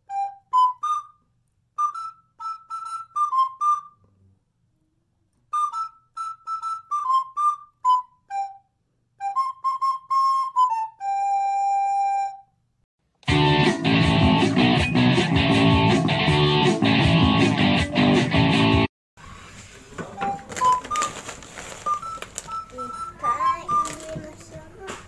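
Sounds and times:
solo flute melody: 0.0 - 4.1, 5.5 - 12.6, 20.1 - 24.3
guitar tune: 13.2 - 18.9, 21.9 - 24.7.

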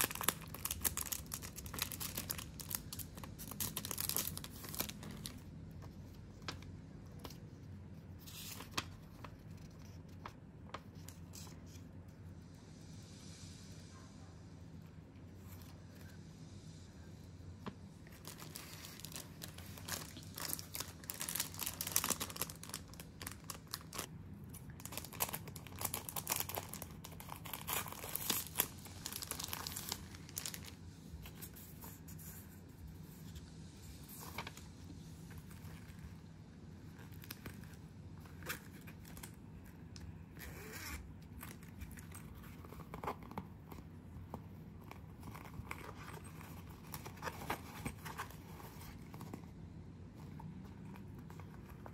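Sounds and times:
plastic and paper crinkling: 0.0 - 11.8, 18.0 - 33.3, 41.2 - 49.5.

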